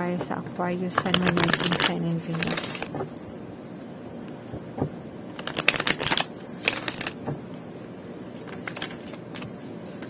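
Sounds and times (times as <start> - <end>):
cards being shuffled: 1.0 - 3.0, 5.4 - 7.4, 8.4 - 10.0.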